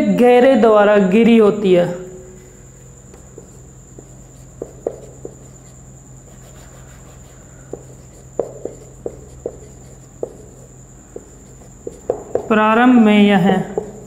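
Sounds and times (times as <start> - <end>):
marker squeaking on whiteboard: 2.4 - 12.6.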